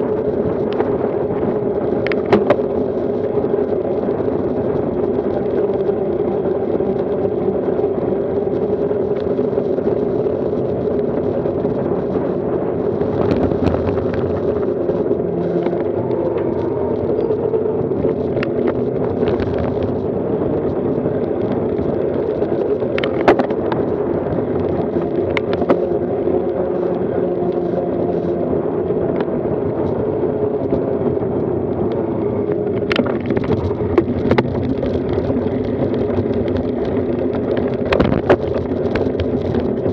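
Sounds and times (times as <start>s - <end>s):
bicycle tyre noise: 0.0s - 39.9s
wind rush: 0.0s - 39.9s.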